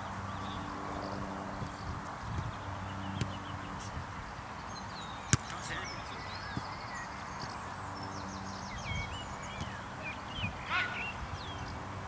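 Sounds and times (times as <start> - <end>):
birds chirping: 0.0 - 12.0
football kicked on grass: 3.2 - 3.4, 5.3 - 5.8, 6.4 - 6.8, 9.5 - 9.8.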